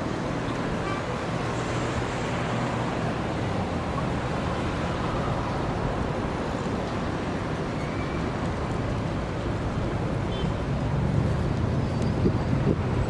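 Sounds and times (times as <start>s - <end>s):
wind buffeting microphone: 11.8s - 13.0s.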